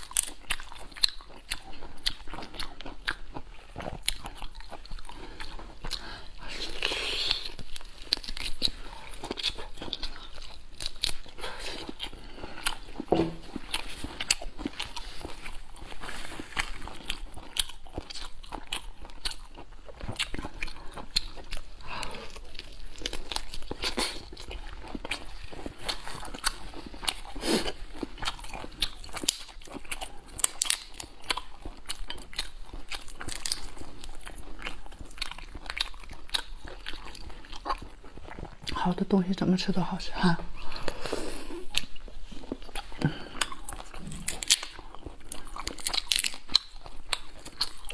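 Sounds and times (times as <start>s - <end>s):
person chewing prawn meat: 0.0s - 38.9s, 40.5s - 47.9s.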